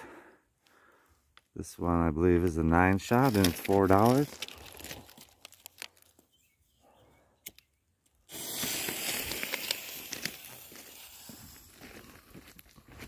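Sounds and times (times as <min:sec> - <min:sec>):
fuse sizzling and crackling: 0:08.3 - 0:13.0.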